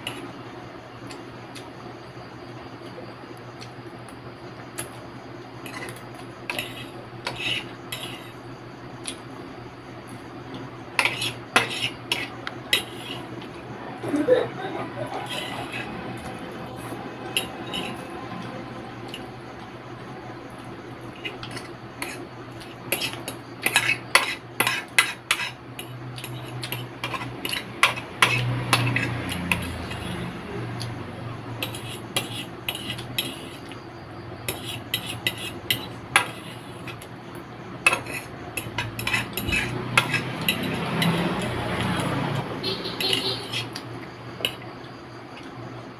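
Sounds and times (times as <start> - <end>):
fork scraping and clinking on plate: 5.6 - 8.3, 11.0 - 13.5, 15.1 - 18.1, 21.1 - 30.2, 31.6 - 33.8, 34.5 - 37.1, 37.8 - 42.2, 43.0 - 43.8.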